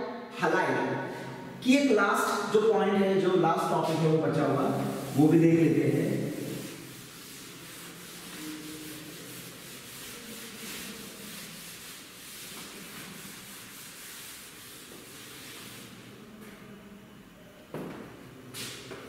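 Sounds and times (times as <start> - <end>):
duster rubbing chalkboard: 3.3 - 16.4.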